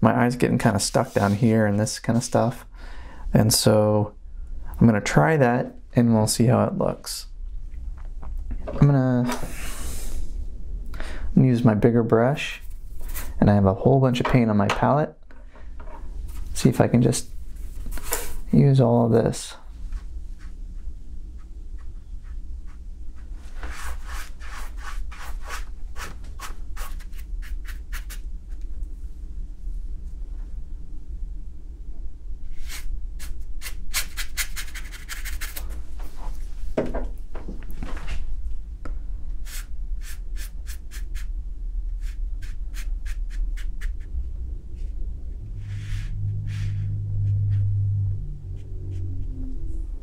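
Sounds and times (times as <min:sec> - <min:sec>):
faint low hum: 0:00.0 - 0:50.0
brush strokes on paper: 0:01.0 - 0:01.5, 0:45.6 - 0:47.9
brush scrubbing paint on paper: 0:19.9 - 0:28.6, 0:32.6 - 0:35.6, 0:42.0 - 0:44.1.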